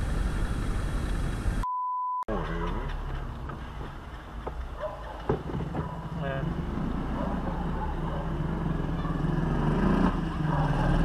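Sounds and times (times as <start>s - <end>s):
engine running: 0.0s - 1.6s
pure beep tone: 1.6s - 2.3s.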